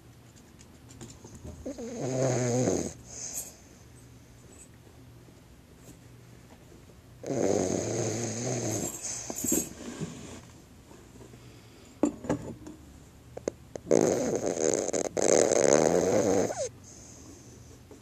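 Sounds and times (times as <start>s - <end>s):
dog snoring: 1.6s - 3.6s, 7.2s - 10.4s, 13.4s - 17.5s.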